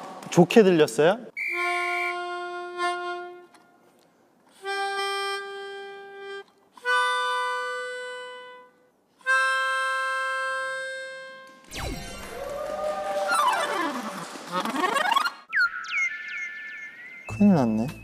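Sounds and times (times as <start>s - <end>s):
melodica long held notes: 1.5s - 3.8s, 4.6s - 11.7s.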